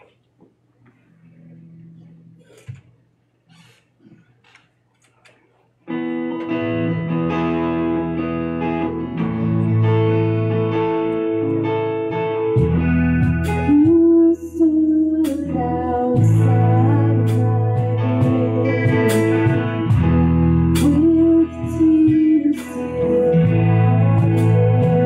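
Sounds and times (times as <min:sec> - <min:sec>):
guitars playing sustained chords: 0:05.9 - 0:25.0
person singing: 0:12.6 - 0:25.0.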